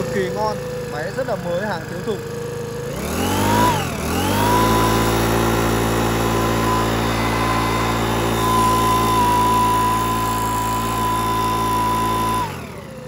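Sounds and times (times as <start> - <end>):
leaf blower engine running: 0.0 - 13.0
high whine: 5.1 - 12.5.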